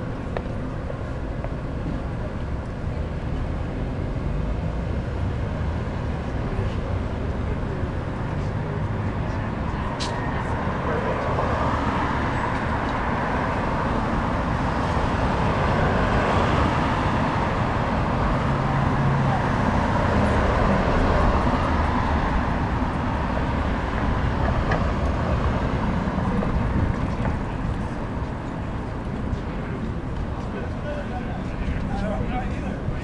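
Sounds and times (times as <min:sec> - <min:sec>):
road traffic passing: 0:00.0 - 0:33.0.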